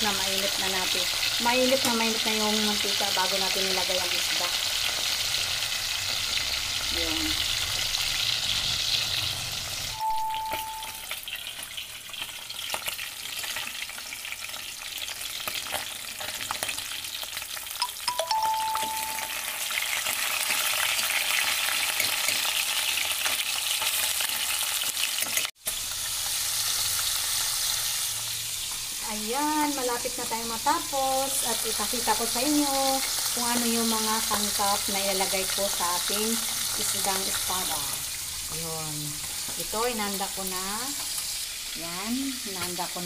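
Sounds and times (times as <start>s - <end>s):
fish sizzling in a pan: 0.0s - 43.0s
brief high tones: 10.0s - 11.1s, 17.8s - 19.6s.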